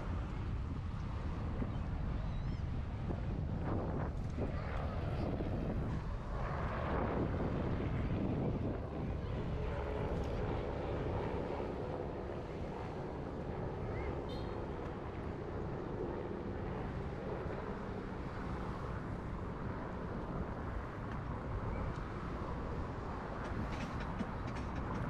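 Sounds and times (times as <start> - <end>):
wind on microphone: 0.0 - 14.3
low rumble of traffic: 0.0 - 25.0.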